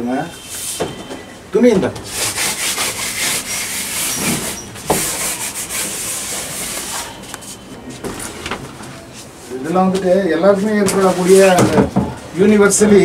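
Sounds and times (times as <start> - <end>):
canvases scraping against each other: 2.0 - 8.4, 10.6 - 11.8.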